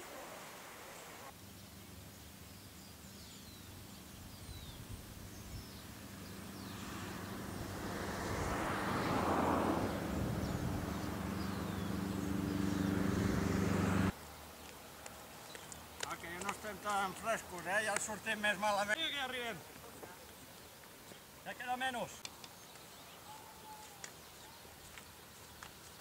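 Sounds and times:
birds chirping: 1.0s - 26.0s
vehicle engine running: 5.9s - 14.1s.

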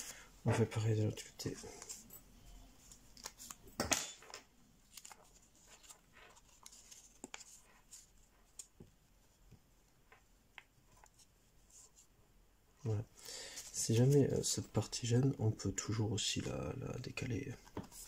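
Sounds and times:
paper crinkling: 4.8s - 8.8s
paper rustle: 4.8s - 8.8s.

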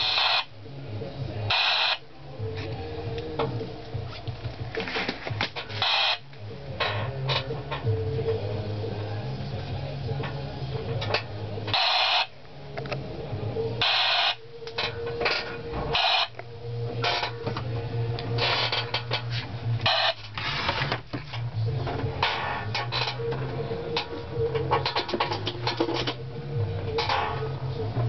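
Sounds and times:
bursts of static hiss: 11.7s - 13.0s, 18.3s - 21.5s.

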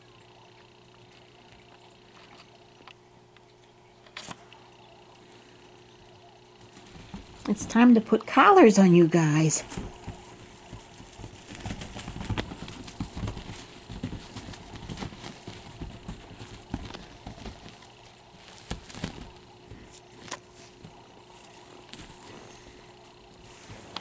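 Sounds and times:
kitten thumping and scuffing: 9.6s - 22.4s.

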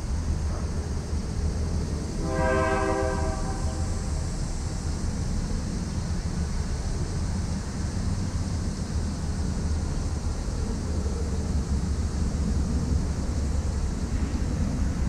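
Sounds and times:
train rumble: 0.0s - 15.0s
locomotive horn blast: 2.2s - 4.1s.

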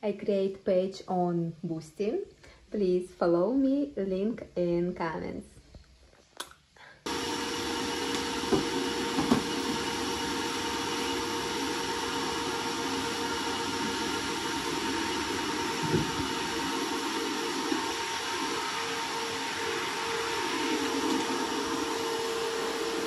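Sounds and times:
vacuum cleaner running: 7.0s - 23.0s.

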